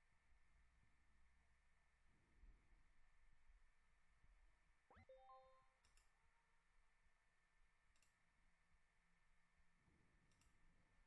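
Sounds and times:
faint mouse clicks: 5.8s - 6.2s, 7.9s - 8.3s, 10.2s - 10.7s.

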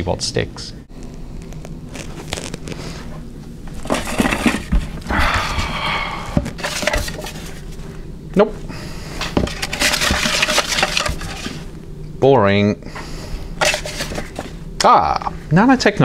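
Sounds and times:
paper rustling and crinkling: 1.4s - 5.1s, 6.4s - 7.8s, 9.4s - 11.7s, 13.6s - 14.5s.

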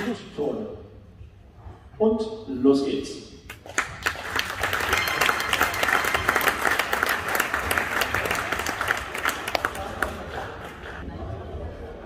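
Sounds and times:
crowd applauding: 3.6s - 11.1s.

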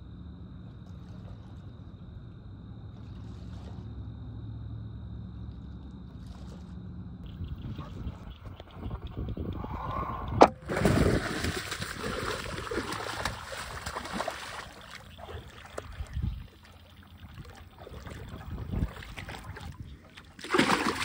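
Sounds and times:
splashing in shallow water: 2.8s - 4.1s, 5.5s - 9.0s, 9.7s - 21.0s.

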